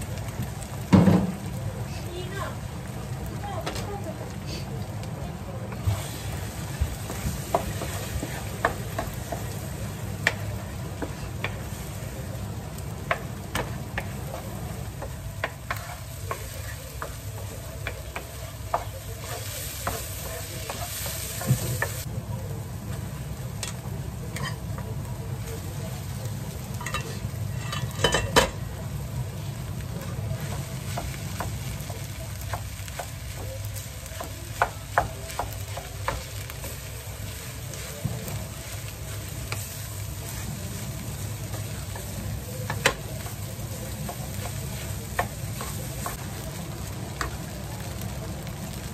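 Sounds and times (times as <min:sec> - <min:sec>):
food sizzling: 0:00.0 - 0:48.9
spatula scraping frying pan: 0:05.7 - 0:12.0, 0:13.1 - 0:22.1, 0:23.6 - 0:24.7, 0:26.7 - 0:28.4.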